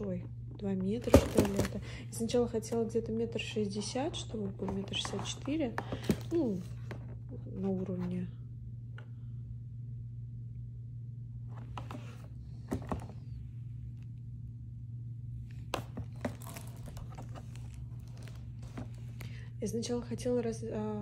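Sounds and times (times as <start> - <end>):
steady low hum: 0.0 - 21.0
packaging rustling and crinkling: 1.0 - 1.9, 4.5 - 7.1, 15.7 - 19.4.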